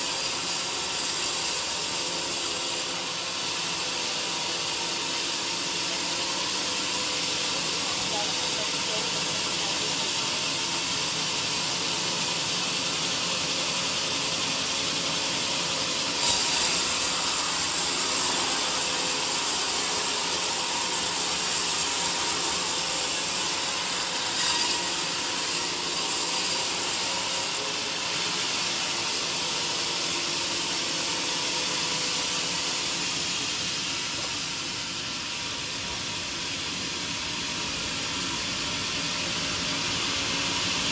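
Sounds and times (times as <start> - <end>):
band saw cutting wood: 0.0 - 6.6, 16.2 - 35.0.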